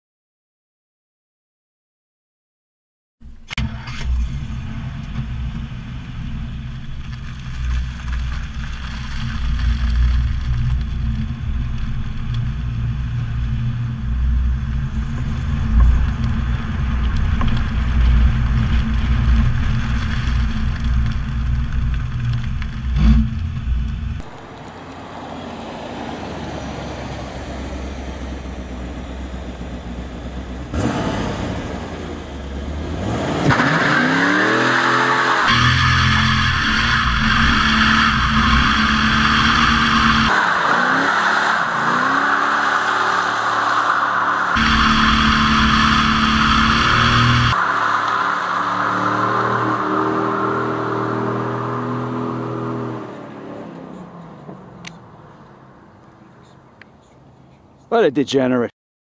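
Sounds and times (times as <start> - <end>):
car engine running: 3.2 - 24.6, 35.5 - 40.3, 44.1 - 48.2
wind: 3.2 - 58.7.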